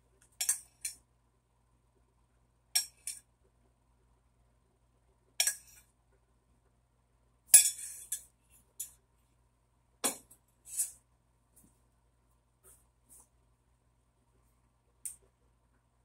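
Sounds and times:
metal spoon clinking on saucepan: 0:05.4 - 0:05.8, 0:07.6 - 0:08.3.

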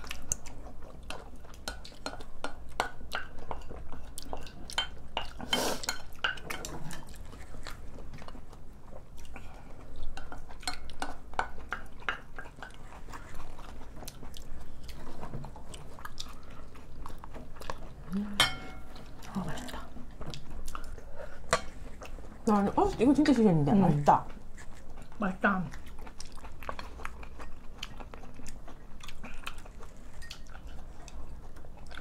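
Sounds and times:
chewing: 0:00.0 - 0:32.0
utensils clinking on ceramic bowls: 0:18.4 - 0:18.9.

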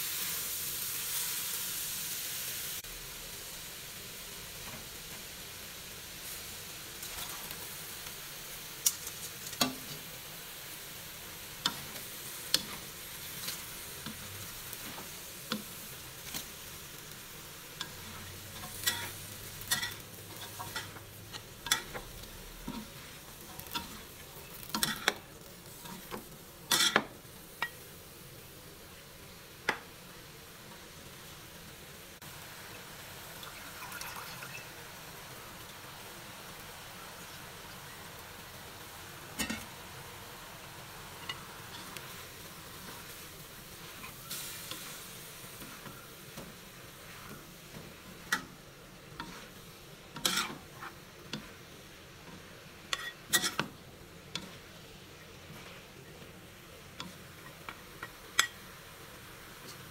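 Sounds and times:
vegetables sizzling in a wok: 0:00.0 - 0:59.9
spatulas scraping a pan: 0:17.8 - 0:27.1, 0:41.2 - 0:51.6, 0:52.2 - 0:54.7.

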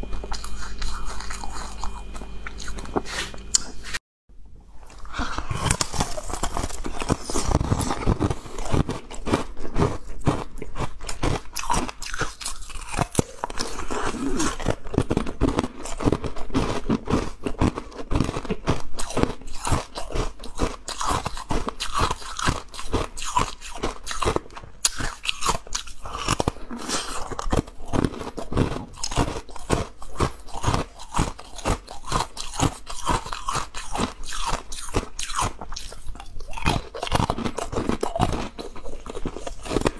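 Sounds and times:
ice cubes crunching between teeth: 0:00.0 - 0:04.0, 0:04.9 - 0:39.9.

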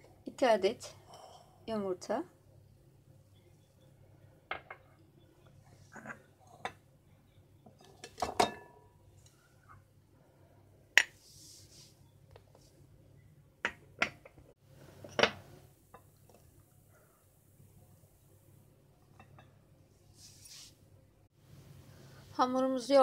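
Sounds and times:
glassware clinking on stone: 0:08.0 - 0:08.8.

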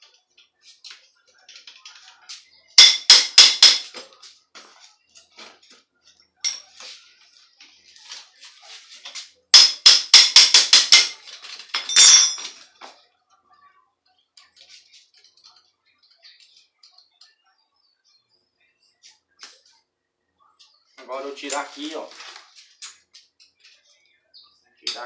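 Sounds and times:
metal tools striking: 0:02.8 - 0:03.9, 0:06.4 - 0:06.7, 0:09.5 - 0:12.6.

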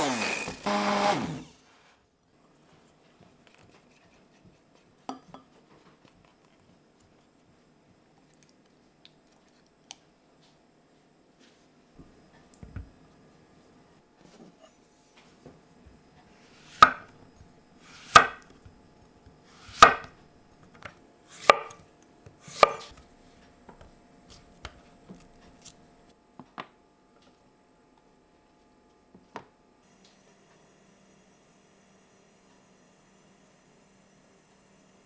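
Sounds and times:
knife cutting onto wooden board: 0:17.9 - 0:18.5, 0:19.6 - 0:20.1, 0:22.5 - 0:22.9.

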